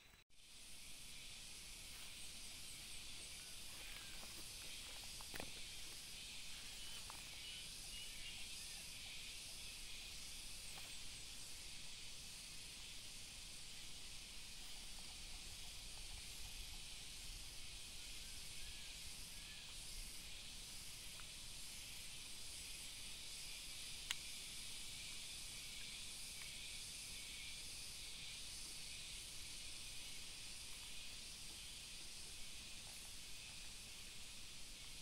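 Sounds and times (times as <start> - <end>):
high hiss: 0.0 - 35.0.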